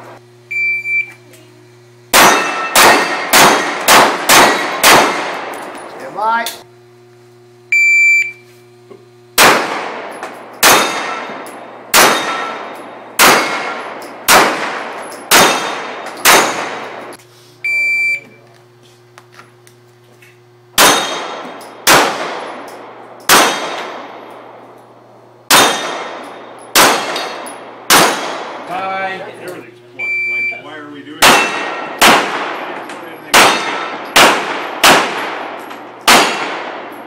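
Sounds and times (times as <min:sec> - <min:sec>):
shot timer beeps: 0:00.5 - 0:01.2, 0:07.7 - 0:08.5, 0:17.6 - 0:18.4, 0:30.0 - 0:30.7
pistol shots: 0:02.1 - 0:05.8, 0:09.4 - 0:17.1, 0:20.8 - 0:24.6, 0:25.5 - 0:28.7, 0:31.2 - 0:37.0
steel plates ringing: 0:02.2 - 0:03.7, 0:10.5 - 0:14.2.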